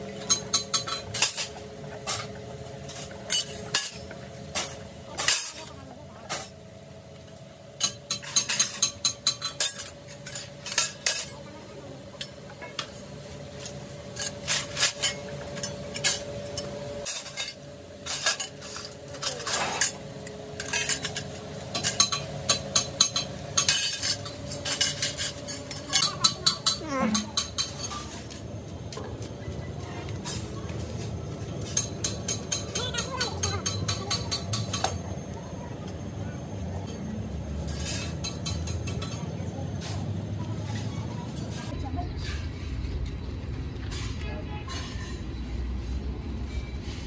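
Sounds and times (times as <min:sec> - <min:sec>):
metal trowels clinking: 0:13.6 - 0:20.0, 0:20.6 - 0:28.4.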